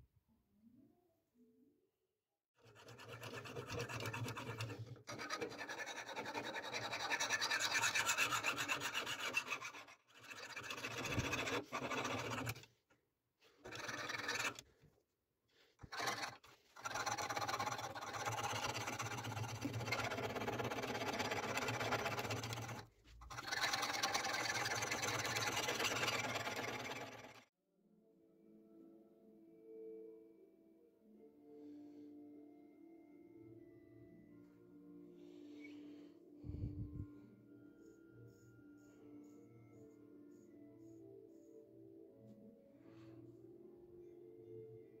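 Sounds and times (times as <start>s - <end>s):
sharpening stone rasping on knife: 2.7s - 12.6s.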